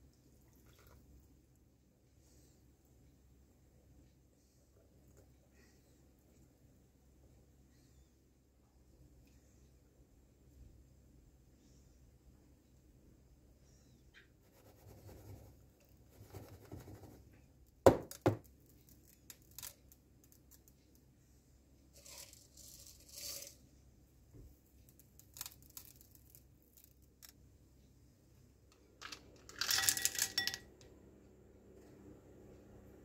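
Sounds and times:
chocolate chips scattering: 22.0 - 23.6, 24.9 - 27.3, 29.0 - 30.7.

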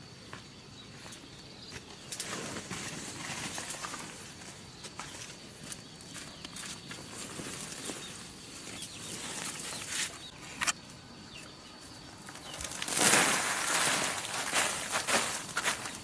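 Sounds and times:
plastic tarp rustling: 12.2 - 16.0
peanuts poured onto tarp: 12.3 - 16.0.

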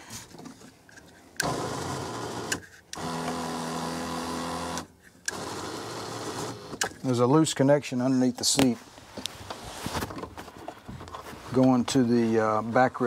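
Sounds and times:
seat motors whirring: 1.4 - 6.9.

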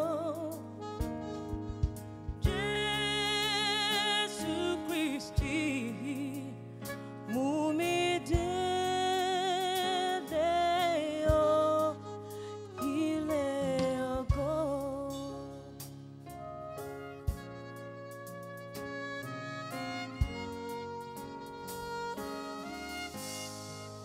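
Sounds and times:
instrumental backing: 0.0 - 24.0.

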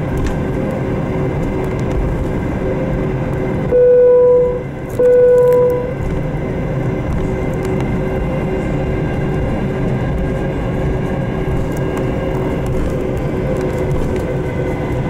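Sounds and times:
airplane cabin rumble: 0.0 - 15.0
loud steady tones: 3.7 - 6.0.

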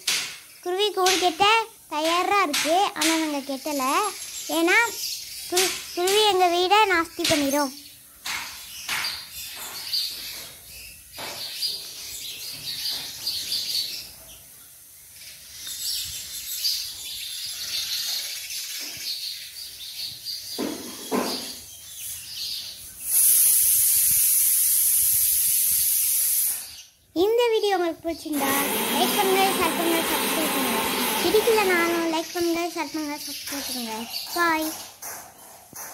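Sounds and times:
sparrows chirping: 0.0 - 35.9
loud steady hiss: 22.9 - 27.0, 28.2 - 34.0.

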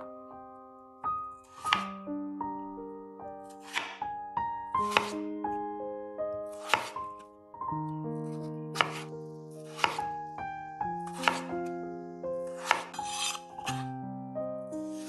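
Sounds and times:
piano music: 0.0 - 15.0
knife slicing potatoes: 1.5 - 1.9, 3.5 - 4.0, 4.8 - 5.2, 6.5 - 7.0, 8.7 - 10.0, 11.1 - 11.6, 12.5 - 13.9.

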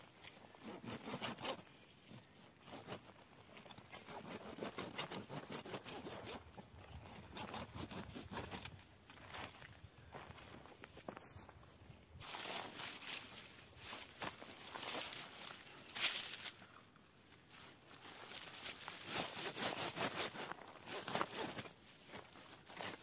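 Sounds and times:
dry stems crackling and tearing: 12.2 - 16.7, 17.3 - 23.0.

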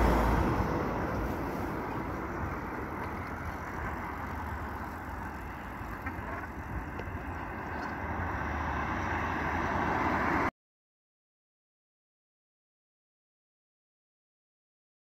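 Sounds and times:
low road rumble: 0.0 - 10.5
passing traffic: 0.0 - 10.5.

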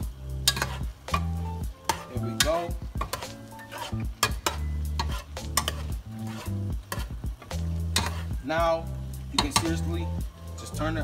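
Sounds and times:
background music with deep bass: 0.0 - 11.0
metal spoon stirring thick soup: 0.4 - 8.4.

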